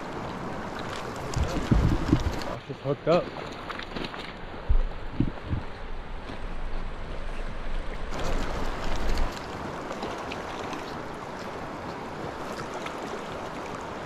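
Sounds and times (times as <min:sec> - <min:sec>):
wind rumbling on microphone: 0:00.0 - 0:02.6, 0:04.3 - 0:10.0
river current rushing: 0:00.0 - 0:14.0.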